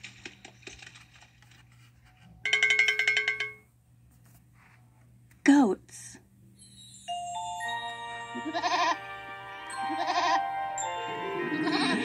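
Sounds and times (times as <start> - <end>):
gentle music: 6.4 - 12.0
goat bleating: 8.4 - 9.0, 9.9 - 10.4, 11.5 - 12.0.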